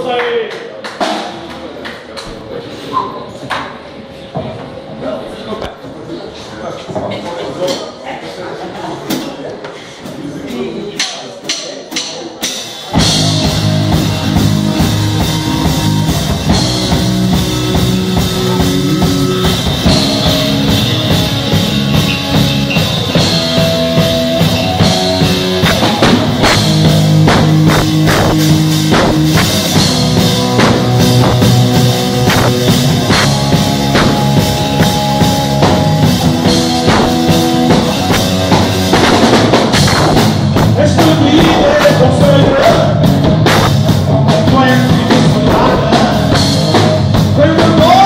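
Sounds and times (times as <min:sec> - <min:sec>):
drum kit: 0:11.0 - 0:48.0
bass guitar: 0:12.9 - 0:48.0
electric guitar: 0:13.0 - 0:48.0.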